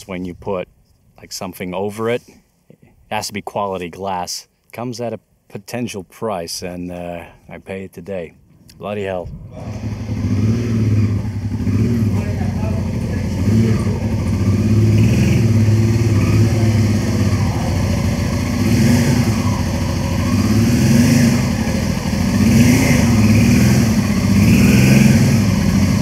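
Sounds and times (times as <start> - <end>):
motorcycle engine revving: 9.2 - 26.0.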